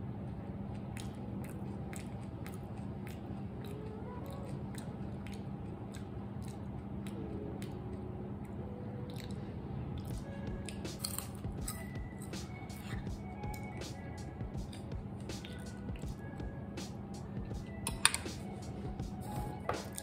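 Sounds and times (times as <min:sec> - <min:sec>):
steady low hum: 0:00.0 - 0:20.0
person chewing crispy food: 0:00.6 - 0:13.8.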